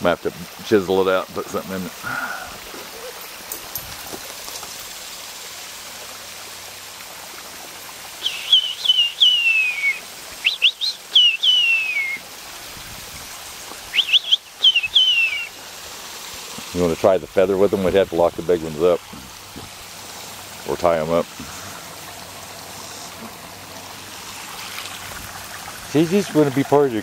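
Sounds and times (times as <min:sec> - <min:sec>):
small waterfall rushing: 0:00.0 - 0:27.0
songbird singing: 0:08.2 - 0:12.2, 0:13.7 - 0:15.7.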